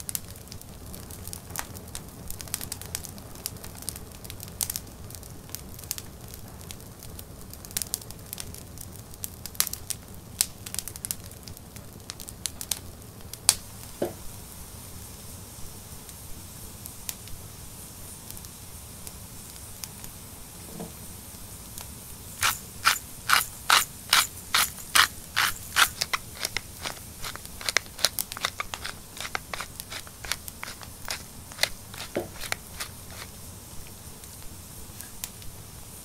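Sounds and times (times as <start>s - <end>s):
spice mill grinding: 22.4s - 33.5s
faint crackles: 22.4s - 35.6s.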